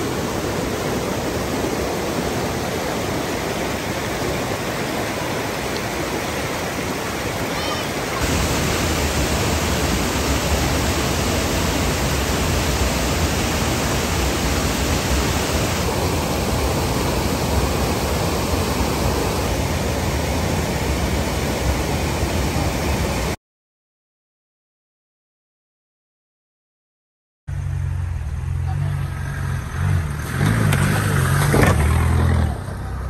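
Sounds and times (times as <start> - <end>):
river rapids rushing: 0.0 - 23.4.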